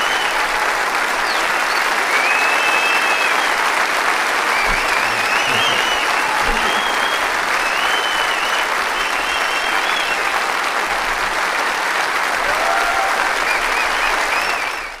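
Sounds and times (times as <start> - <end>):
large audience applauding: 0.0 - 15.0.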